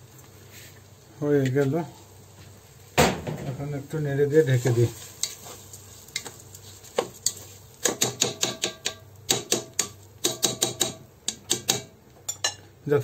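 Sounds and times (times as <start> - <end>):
spatula scraping a pot: 4.5 - 8.0.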